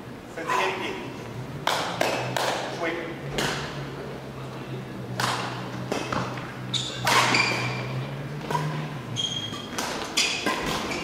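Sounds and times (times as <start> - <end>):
court shoes squeaking on floor: 5.2 - 11.0.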